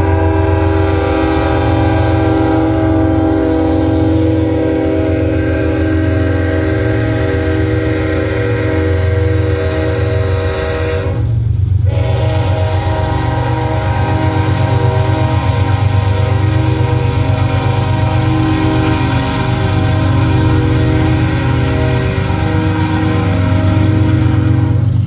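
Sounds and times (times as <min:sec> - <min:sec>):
diesel locomotive engine rumble: 0:00.0 - 0:25.0
locomotive air horn: 0:00.0 - 0:25.0.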